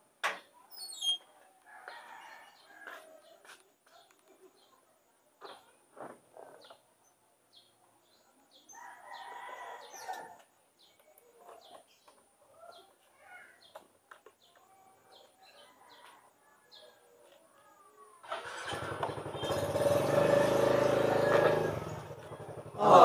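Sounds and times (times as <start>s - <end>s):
rooster crowing: 1.7s - 3.2s, 8.7s - 10.4s.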